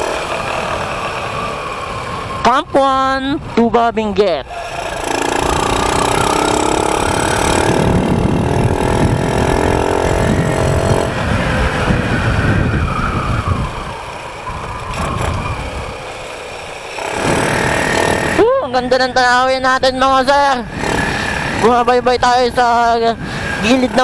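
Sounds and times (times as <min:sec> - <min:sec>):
wind rumbling on microphone: 0:00.0 - 0:24.0
motorcycle engine pulling in gear: 0:04.6 - 0:18.4.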